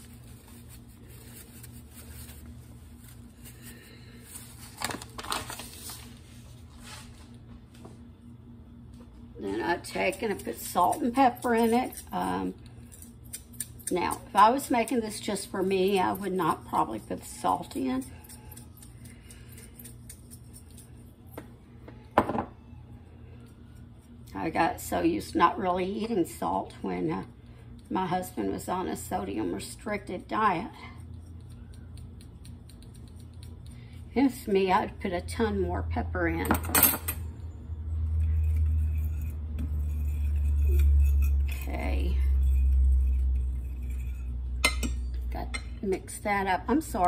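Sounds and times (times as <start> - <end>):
steady low hum: 0.0 - 47.0
shaker knocking on counter: 22.2 - 22.5.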